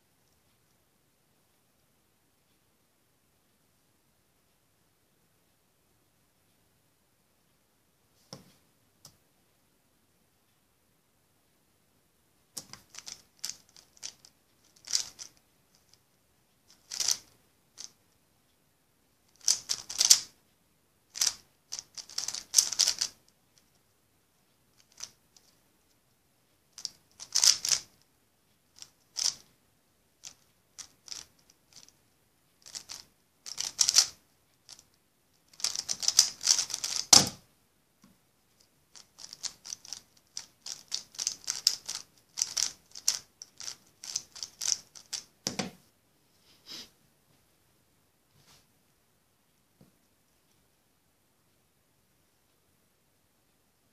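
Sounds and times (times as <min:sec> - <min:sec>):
puzzle cube clacking: 0:12.6 - 0:16.0, 0:16.7 - 0:18.0, 0:19.3 - 0:20.4, 0:21.1 - 0:23.8, 0:24.8 - 0:25.6, 0:26.7 - 0:28.0, 0:28.8 - 0:29.5, 0:30.2 - 0:32.0, 0:32.6 - 0:37.4, 0:38.9 - 0:45.8.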